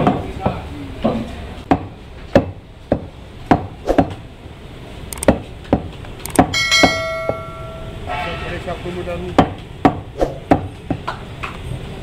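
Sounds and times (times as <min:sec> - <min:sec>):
cleaver chopping meat on wood: 0:01.7 - 0:04.2.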